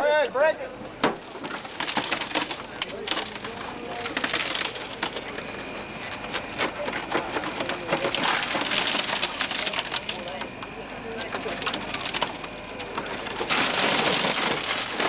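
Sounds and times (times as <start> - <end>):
broken glass crunching and tinkling: 1.2 - 5.5, 7.2 - 10.4, 11.4 - 15.0.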